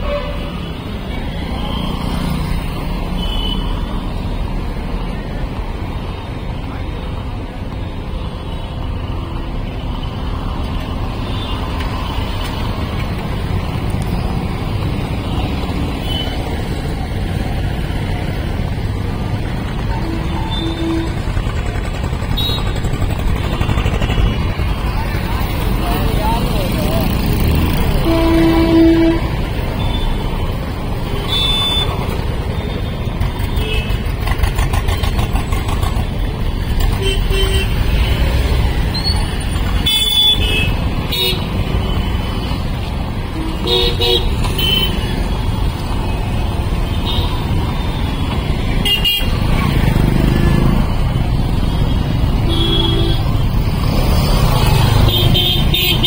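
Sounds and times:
busy street traffic rumble: 0.0s - 56.0s
car horn blast: 28.0s - 29.3s.

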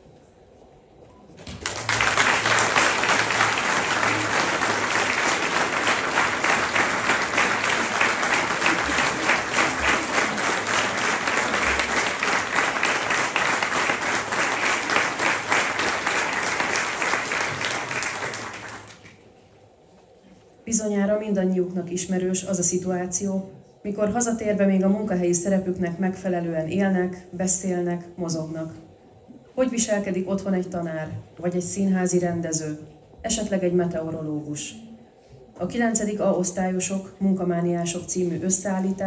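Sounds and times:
audience applauding: 1.4s - 19.1s.

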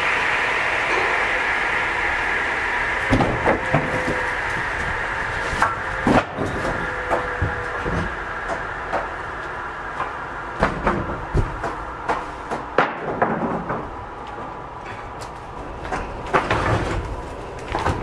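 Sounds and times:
saw machine humming: 0.0s - 12.5s
wooden boards knocking on steel: 10.6s - 13.9s.

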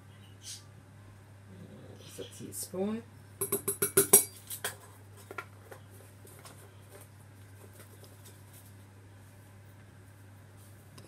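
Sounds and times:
low steady hum: 0.0s - 11.0s
spoon tapping glass jar: 3.4s - 4.4s.

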